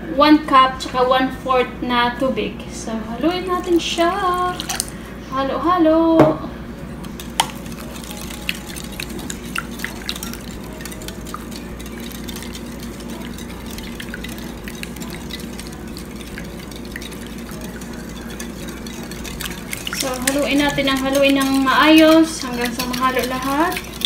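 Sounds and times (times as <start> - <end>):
whisk sloshing eggs: 3.2 - 5.0, 7.0 - 24.0
whisk clicking against glass: 7.0 - 24.0.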